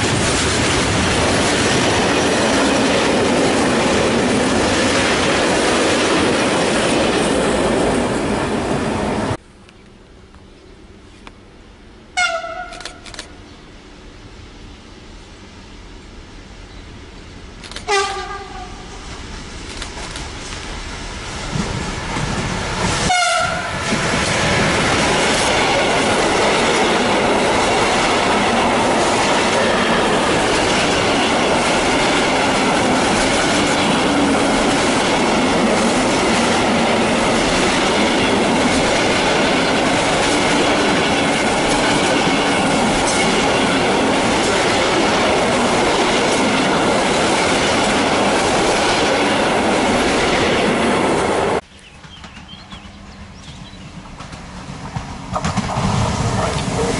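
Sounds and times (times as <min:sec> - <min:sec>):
freight train wheels rumbling: 0:00.0 - 0:56.9
locomotive horn blast: 0:12.2 - 0:13.0, 0:17.8 - 0:18.8, 0:23.1 - 0:23.8
wheels clacking over rail joints: 0:51.6 - 0:56.9.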